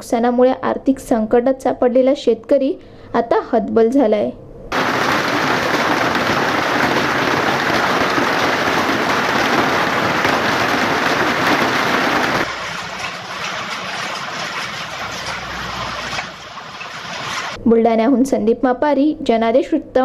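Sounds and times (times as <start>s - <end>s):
hail and heavy rain pelting: 4.7s - 17.6s.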